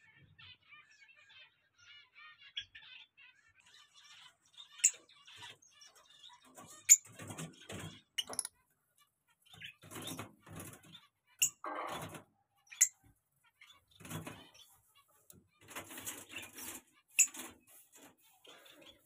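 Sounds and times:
birds chattering softly: 0.0s - 19.0s
sharp high bird chirps: 8.2s - 8.5s.

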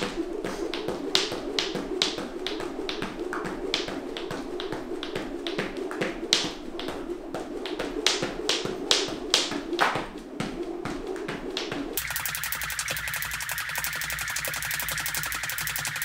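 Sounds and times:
jump rope slapping floor: 0.0s - 16.0s
steady hum: 12.0s - 16.0s.

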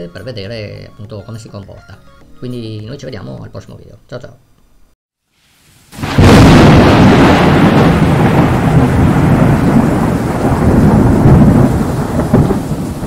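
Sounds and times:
steady rain: 5.3s - 13.0s
low rolling thunder: 6.0s - 13.0s.

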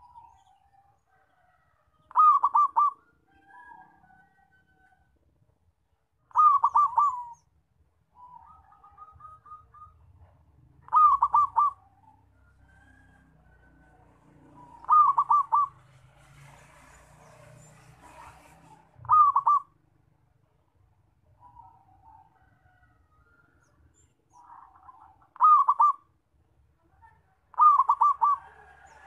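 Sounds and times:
dove cooing: 2.1s - 3.7s, 6.3s - 7.5s, 8.2s - 12.2s, 14.3s - 16.0s, 18.4s - 19.8s, 24.4s - 26.1s, 27.5s - 29.0s.

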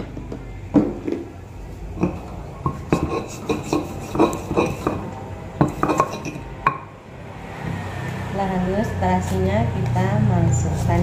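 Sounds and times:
stone pestle grinding in mortar: 2.0s - 6.9s.

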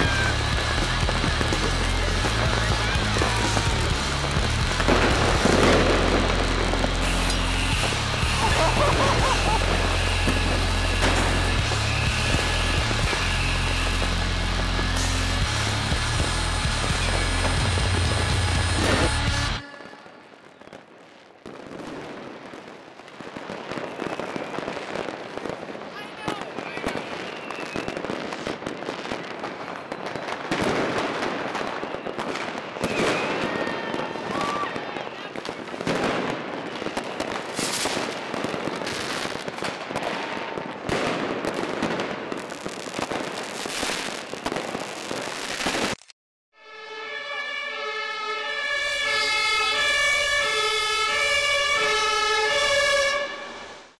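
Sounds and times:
sirens: 0.0s - 21.0s, 26.9s - 37.6s, 46.6s - 54.0s
fireworks bangs and crackling: 0.0s - 46.1s, 46.9s - 54.0s.

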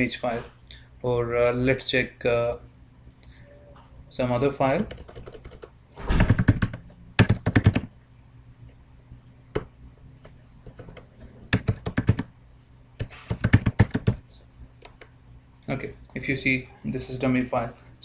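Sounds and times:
typing on computer keyboard: 4.8s - 7.9s, 10.6s - 12.3s, 13.0s - 14.2s.

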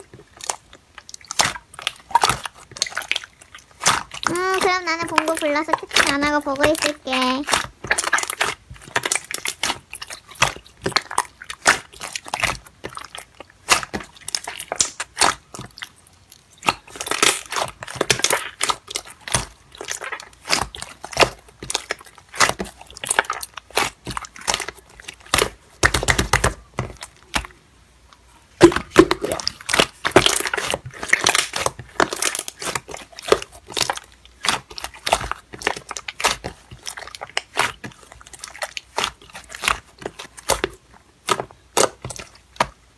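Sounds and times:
slime squeezed by hand: 28.6s - 42.7s.

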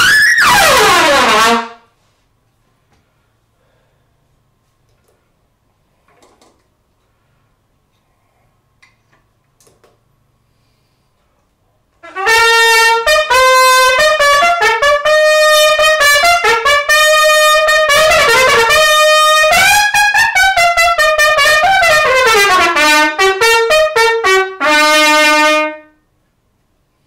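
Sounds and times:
solo trumpet playing: 0.0s - 1.9s, 12.0s - 26.0s.

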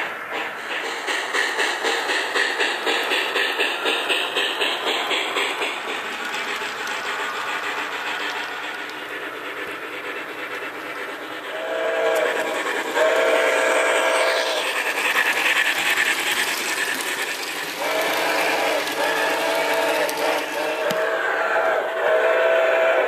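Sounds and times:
model train running noise: 0.0s - 23.0s
model train steam whistle: 11.5s - 23.0s.

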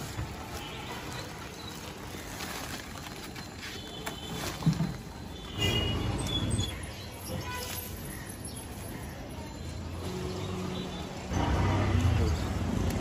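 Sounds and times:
plastic sack rustling and scraping: 0.0s - 6.0s.

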